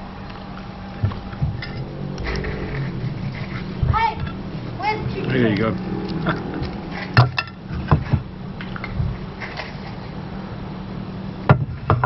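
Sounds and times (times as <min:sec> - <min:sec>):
steady low hum: 0:01.1 - 0:09.8.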